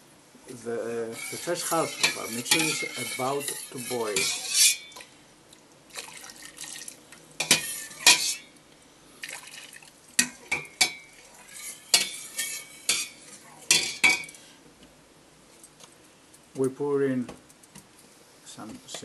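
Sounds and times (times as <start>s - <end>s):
metal ladle scraping pot: 1.0s - 5.2s, 7.4s - 8.5s, 10.2s - 14.3s.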